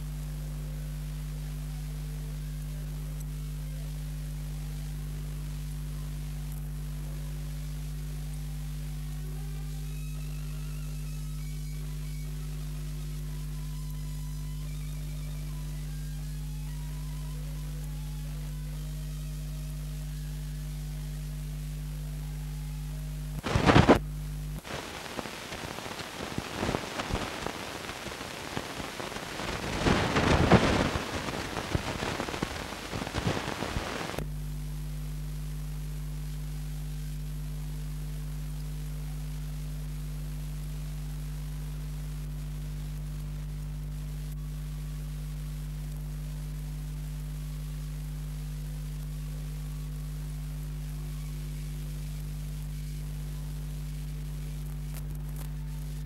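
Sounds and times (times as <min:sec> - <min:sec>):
low electrical hum: 0:00.0 - 0:56.0
loud crackling rumbling noise: 0:23.4 - 0:34.2.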